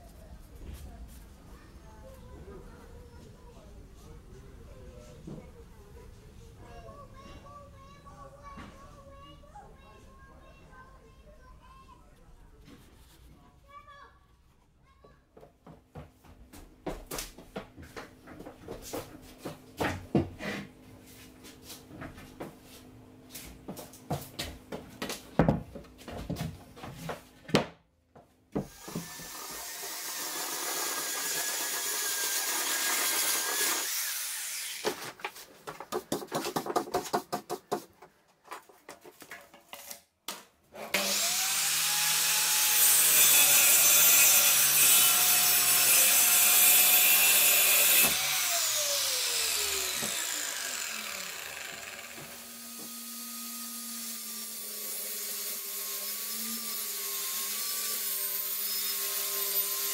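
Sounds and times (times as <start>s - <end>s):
mitre saw cutting wood: 28.6s - 35.1s, 40.8s - 59.9s
table saw motor humming: 28.7s - 34.8s, 40.9s - 59.9s.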